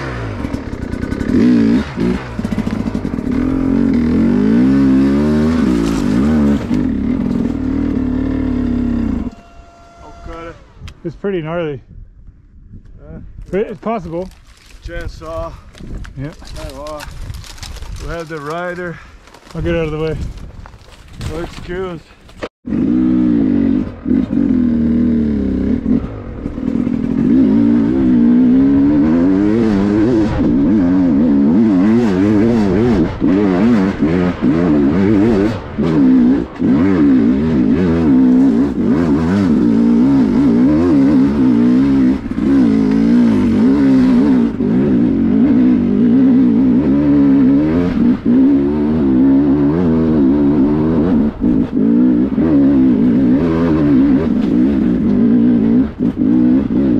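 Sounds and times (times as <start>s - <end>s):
dirt bike engine revving: 0.0s - 11.5s, 22.7s - 56.9s.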